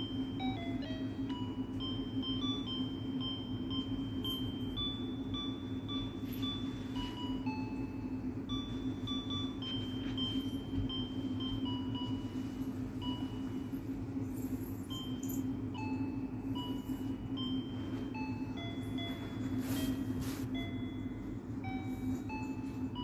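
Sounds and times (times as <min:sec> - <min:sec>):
bell-like chime melody: 0:00.0 - 0:13.8, 0:14.4 - 0:23.0
steady low hum: 0:00.0 - 0:23.0.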